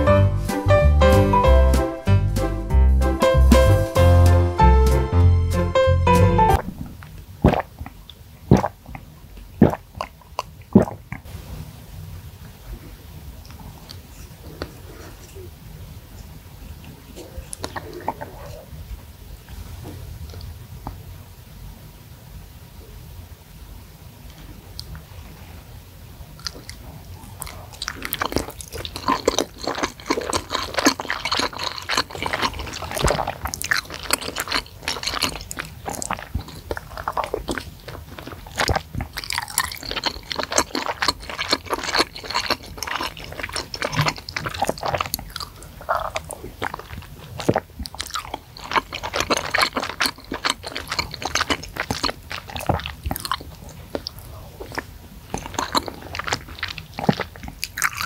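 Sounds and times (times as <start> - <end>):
wet chewing mouth clicks: 6.5 - 11.3, 16.7 - 18.6, 26.4 - 58.0.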